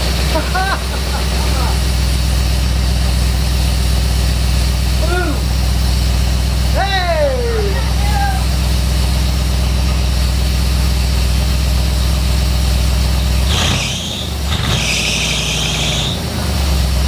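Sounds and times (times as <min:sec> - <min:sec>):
engine running: 0:00.0 - 0:17.0.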